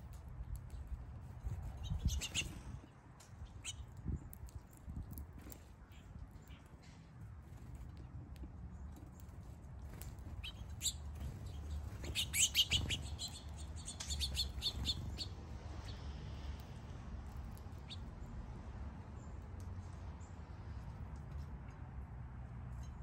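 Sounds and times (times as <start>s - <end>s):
small songbirds chirping: 1.6s - 5.2s, 8.7s - 16.6s, 17.3s - 19.6s.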